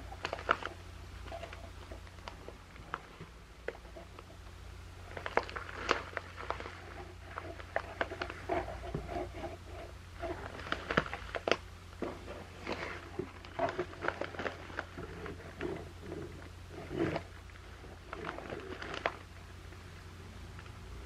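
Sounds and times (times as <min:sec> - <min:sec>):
paper and cardboard rustling: 0:05.0 - 0:19.3.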